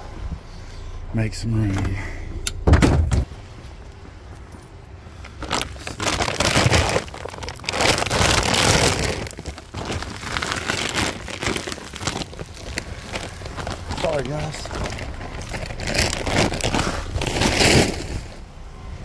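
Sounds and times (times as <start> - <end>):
feed sacks rustling and scraping: 5.3 - 18.5.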